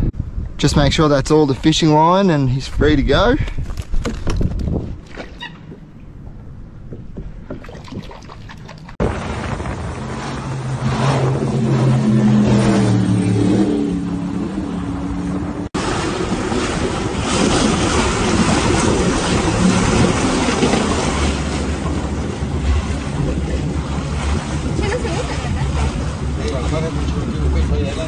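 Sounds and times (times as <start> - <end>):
wind: 0.0 - 28.0
motorboat engine humming: 4.4 - 28.0
rushing water: 7.4 - 11.0, 15.8 - 28.0.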